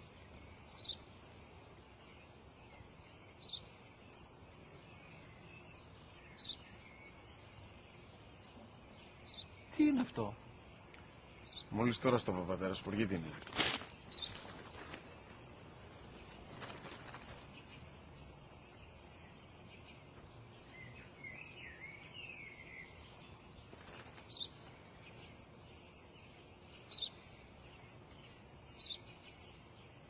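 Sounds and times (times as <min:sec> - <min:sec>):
outdoor background noise: 0:00.0 - 0:30.0
sparrow chirping: 0:00.0 - 0:30.0.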